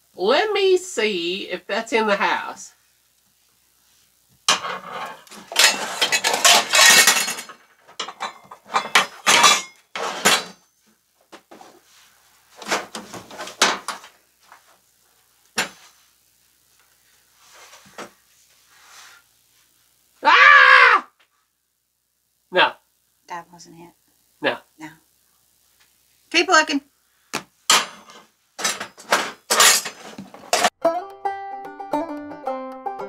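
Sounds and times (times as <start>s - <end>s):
metal utensils and pans clattering: 4.5s - 10.7s, 27.7s - 30.7s.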